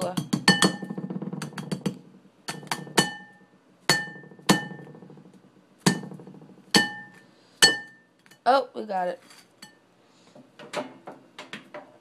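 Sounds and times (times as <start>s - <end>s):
spatula clinking against plate: 9.6s - 9.8s.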